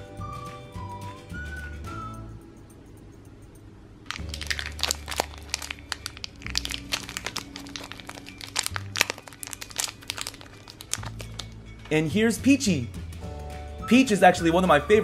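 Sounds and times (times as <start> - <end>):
background music: 0.0 - 3.4, 4.1 - 15.0
plastic wrapper crinkling: 4.1 - 12.0.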